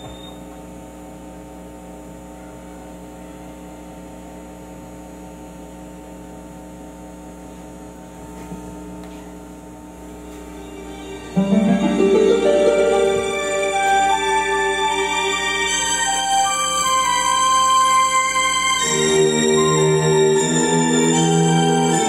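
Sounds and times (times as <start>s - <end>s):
electrical hum from sound system: 0.0s - 22.0s
loud music: 10.5s - 22.0s.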